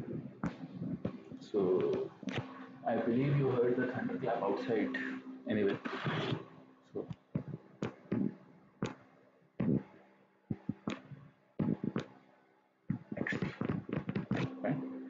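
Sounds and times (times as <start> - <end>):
stylus tapping on tablet screen: 10.5 - 12.1.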